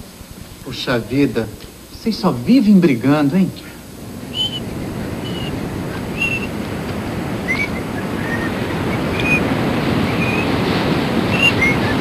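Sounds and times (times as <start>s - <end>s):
wind: 0.0s - 12.0s
surf washing on a beach: 4.1s - 12.0s
bird chirping: 4.3s - 12.0s.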